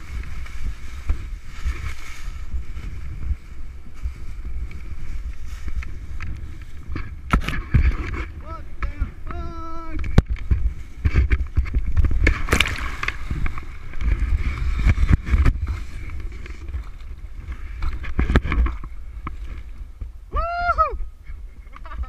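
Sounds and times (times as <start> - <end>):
wind buffeting microphone: 0.0 - 22.0
water splashing: 10.0 - 19.7.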